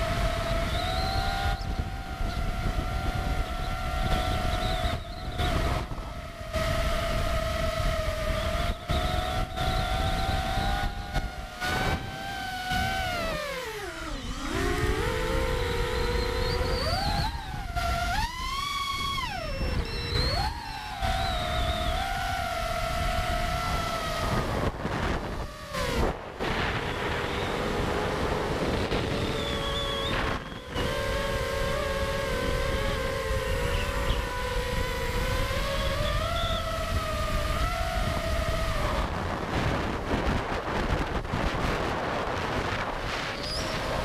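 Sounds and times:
drone motors whining: 0.0 - 44.0
wind rushing on microphone: 0.0 - 44.0.

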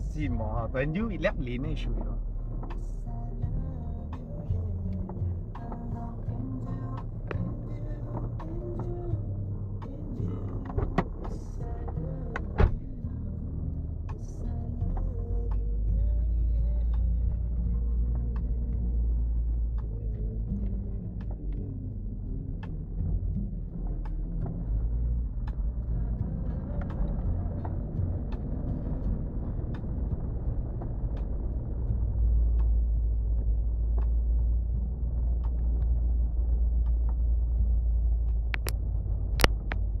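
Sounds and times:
vehicle engine rumble: 0.0 - 40.0
sharp clicks and knocks: 38.6 - 38.8, 39.4 - 39.9.

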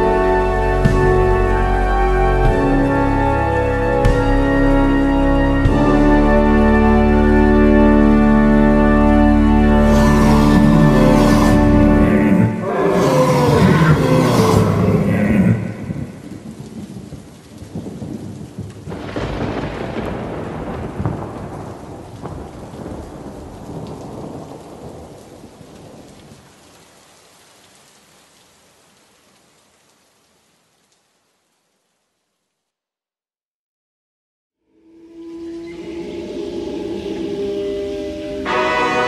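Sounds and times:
rain: 0.0 - 32.9, 34.7 - 39.0
thunder rumbling: 9.6 - 26.5, 35.1 - 39.0
synth music: 34.7 - 39.0.

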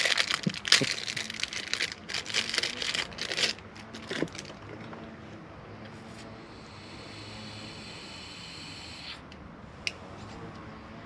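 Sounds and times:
plastic packaging crinkling and tearing: 0.0 - 4.6.

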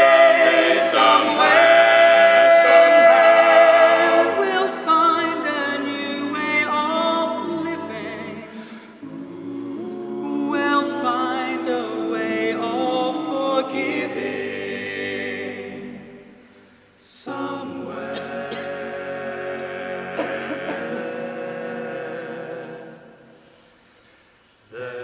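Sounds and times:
male quartet singing harmony: 0.0 - 23.6, 24.7 - 25.0.

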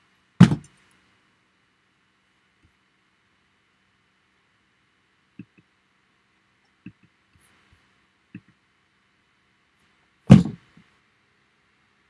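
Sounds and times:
loud thump: 0.4 - 0.7, 10.3 - 10.6.

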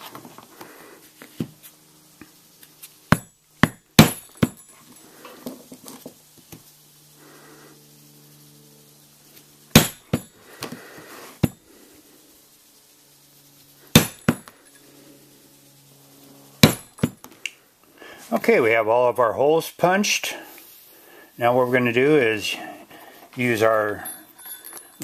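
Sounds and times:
mallet striking metal punch: 3.1 - 4.6, 9.8 - 10.3, 14.0 - 14.5, 16.6 - 17.2.

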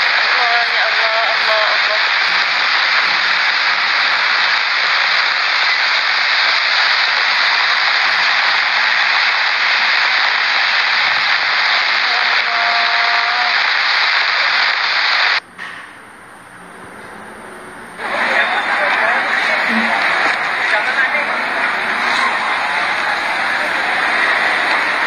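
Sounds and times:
loud rushing hiss: 0.0 - 15.4, 17.2 - 25.0.

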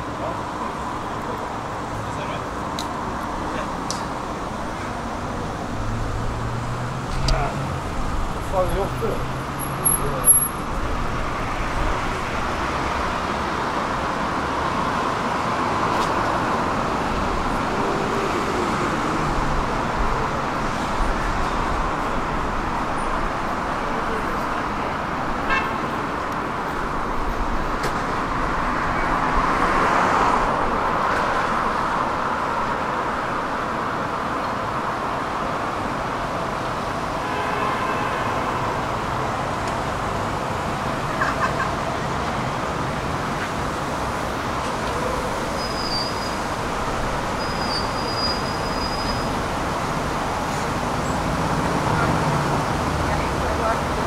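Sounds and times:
cars passing: 0.0 - 54.0
loud vehicle passing: 5.1 - 23.3, 27.4 - 32.6, 49.3 - 54.0.

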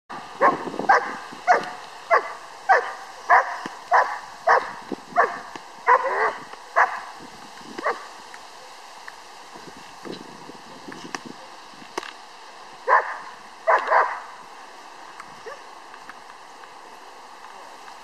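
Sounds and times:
puppy barking sharply: 0.4 - 7.0, 12.9 - 14.2.

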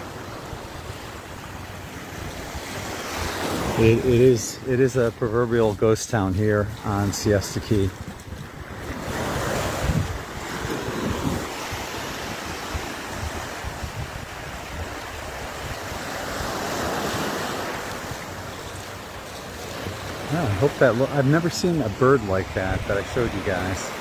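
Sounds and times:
surf washing up a beach: 0.0 - 24.0
wind buffeting the microphone: 2.1 - 18.8, 21.6 - 24.0.

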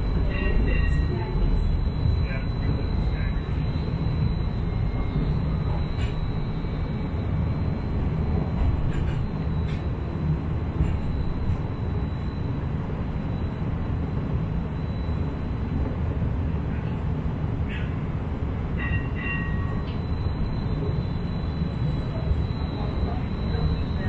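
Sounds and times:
wheels rumbling on rail: 0.0 - 24.0.

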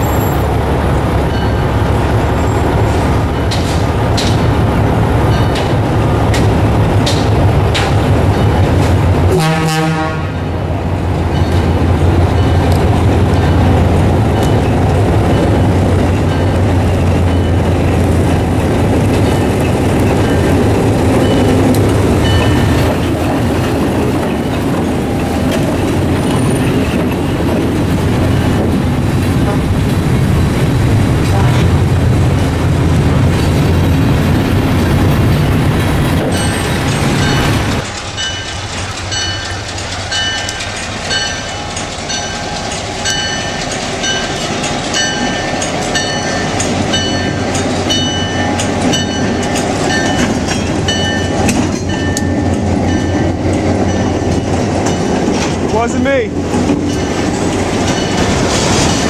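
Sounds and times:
diesel locomotive engine running: 0.0 - 59.0
locomotive horn blast: 9.3 - 10.5, 29.4 - 29.8, 31.2 - 31.8.

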